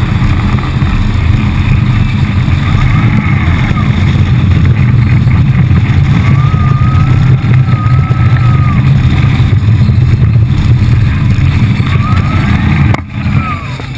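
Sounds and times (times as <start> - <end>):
rushing wind and water: 0.0 - 13.9
speedboat engine droning: 0.0 - 13.9
thin wavering whine: 0.0 - 13.9.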